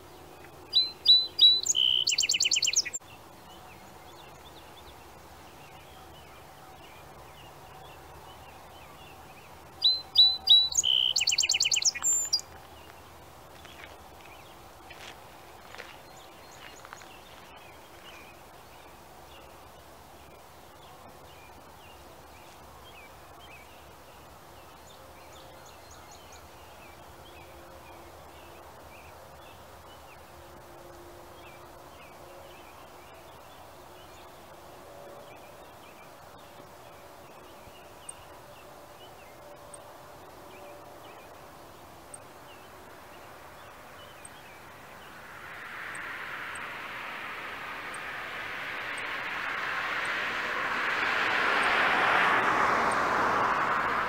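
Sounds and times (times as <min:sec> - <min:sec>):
small birds chirping: 0:00.0 - 0:30.3, 0:35.4 - 0:54.0
rushing noise: 0:42.2 - 0:54.0.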